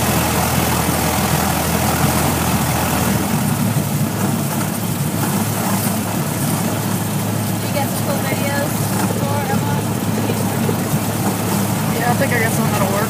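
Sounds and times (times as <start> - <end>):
propeller airplane engine running: 0.0 - 13.0.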